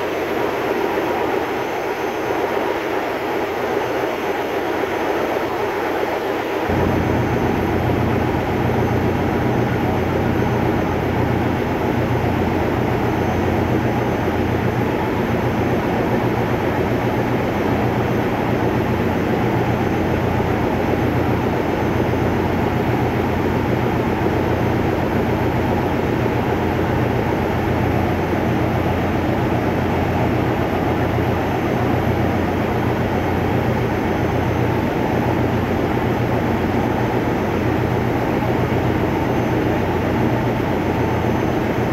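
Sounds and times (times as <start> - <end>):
diesel machinery droning: 6.7 - 14.8.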